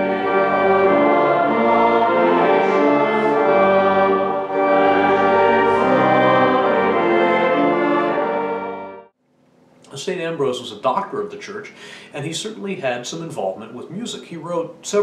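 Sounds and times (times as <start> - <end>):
choir singing a hymn: 0.0 - 9.0
pipe organ: 0.0 - 9.2.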